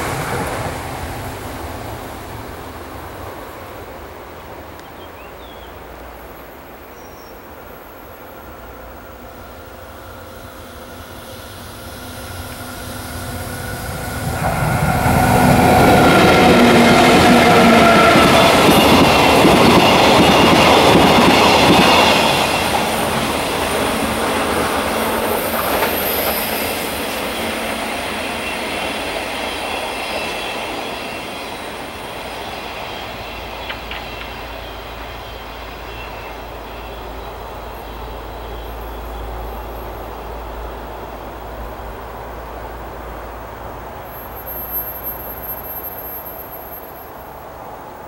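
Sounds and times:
freight train passing: 0:00.0 - 0:48.0
high wheel squeal: 0:10.2 - 0:41.0, 0:44.0 - 0:47.4.

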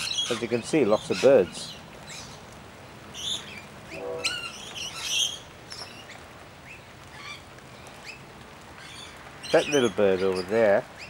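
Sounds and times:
birds chirping and squawking: 0:00.0 - 0:11.0
nasal honk-like bird call: 0:03.9 - 0:05.3.

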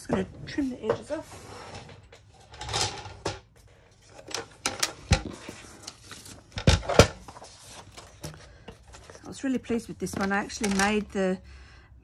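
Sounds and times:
paper rustling and sliding: 0:05.2 - 0:09.4.

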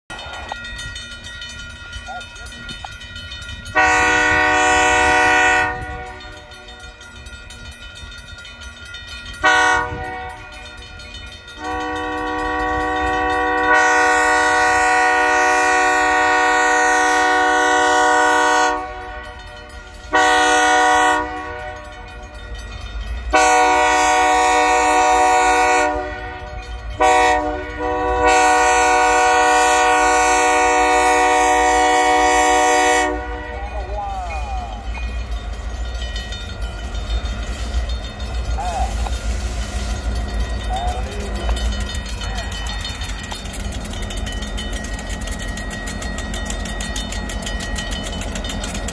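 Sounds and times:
locomotive air horn blasts: 0:03.7 - 0:06.5, 0:09.4 - 0:10.6, 0:11.6 - 0:22.1, 0:23.3 - 0:33.8.

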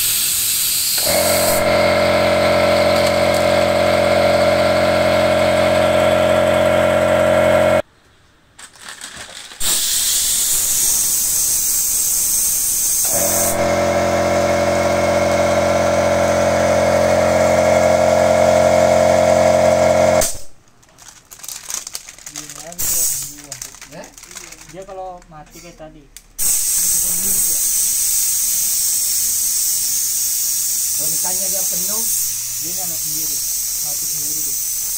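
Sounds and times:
compressed air hissing from blow gun: 0:00.0 - 0:01.7, 0:09.6 - 0:13.9, 0:22.8 - 0:23.4, 0:26.4 - 0:34.9
air compressor motor humming: 0:00.0 - 0:07.8, 0:09.6 - 0:20.5, 0:26.4 - 0:34.9.

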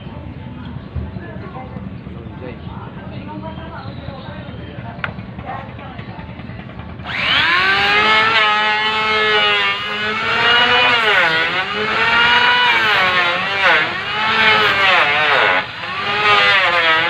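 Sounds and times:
electric planer cutting wood: 0:07.0 - 0:17.0.

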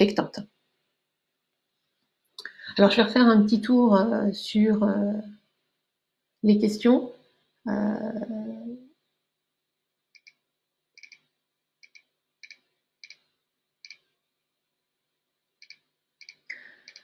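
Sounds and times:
computer mouse clicks: 0:10.1 - 0:10.4, 0:11.0 - 0:14.1, 0:15.6 - 0:17.0.

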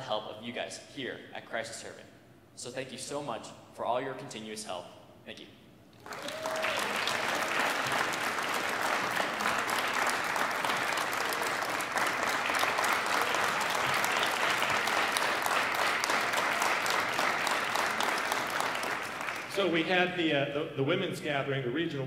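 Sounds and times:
congregation applauding: 0:05.9 - 0:20.0.

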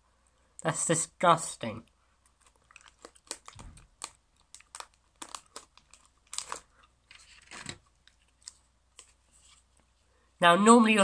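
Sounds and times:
plastic packaging crinkling: 0:02.2 - 0:09.2
soft low thump: 0:03.6 - 0:03.9.

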